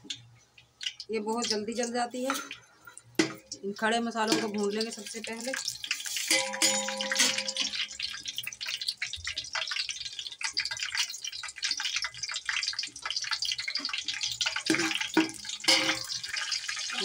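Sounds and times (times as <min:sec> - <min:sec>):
spices sizzling in hot oil: 0:00.0 - 0:17.0
spatula scraping pot: 0:05.8 - 0:07.8.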